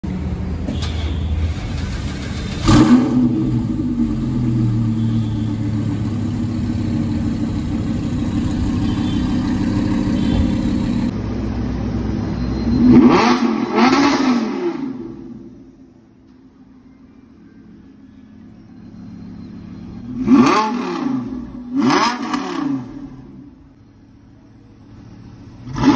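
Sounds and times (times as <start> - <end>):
car engine idling: 0.0 - 12.8, 22.9 - 25.9
car engine starting: 0.6 - 16.2, 18.9 - 25.9
engine revving: 1.5 - 11.2, 12.6 - 15.6, 20.0 - 23.5, 25.6 - 25.9.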